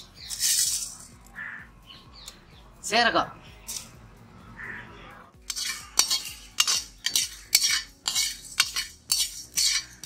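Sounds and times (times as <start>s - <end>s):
seeds rattling against pan: 0.0s - 1.2s, 5.4s - 10.0s
metal spatula scraping iron pan: 5.4s - 10.0s.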